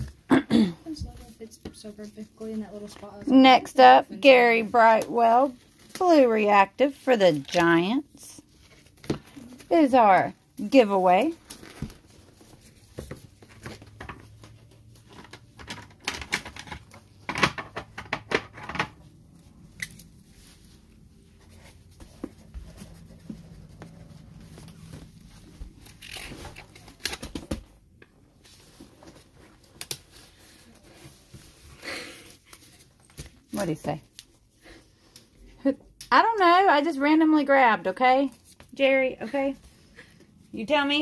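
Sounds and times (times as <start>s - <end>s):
wrappers crinkling and tearing: 24.4s - 27.3s.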